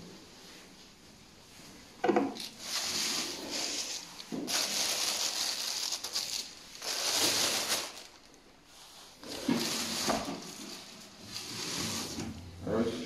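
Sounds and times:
plastic wrap crinkling: 0:02.3 - 0:12.2.

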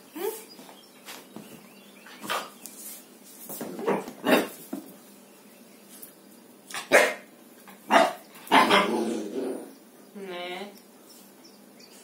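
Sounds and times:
puppy barking: 0:06.8 - 0:07.3, 0:07.9 - 0:09.0.

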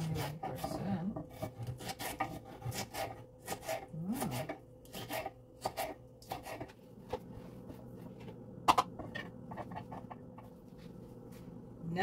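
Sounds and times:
knife chopping on wooden board: 0:00.0 - 0:06.7.

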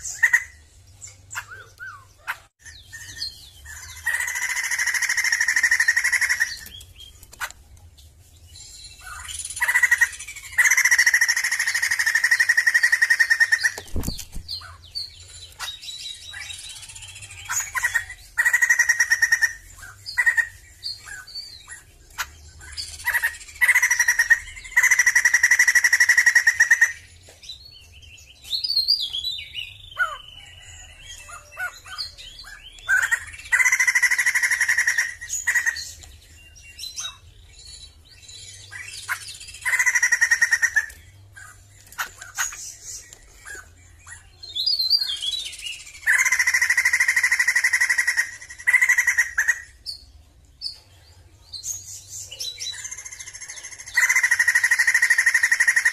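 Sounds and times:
bird singing loud calls: 0:00.0 - 0:07.7, 0:08.4 - 0:55.9.

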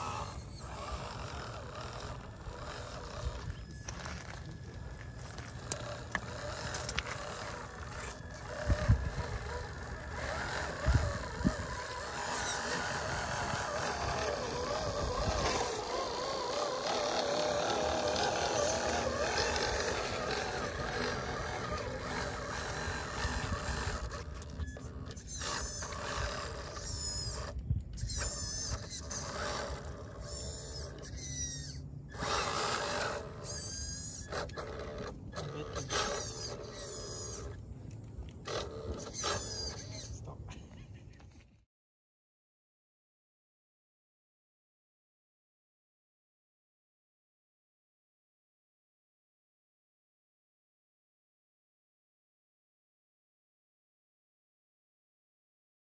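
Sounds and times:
small electric motor whining: 0:00.0 - 0:40.3.

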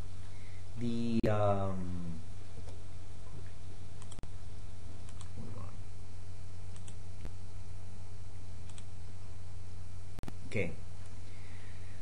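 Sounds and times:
low electrical hum: 0:00.0 - 0:12.0
mouse clicks: 0:04.0 - 0:04.2, 0:06.7 - 0:07.0, 0:08.7 - 0:08.9
computer keyboard clicks: 0:06.8 - 0:07.0.

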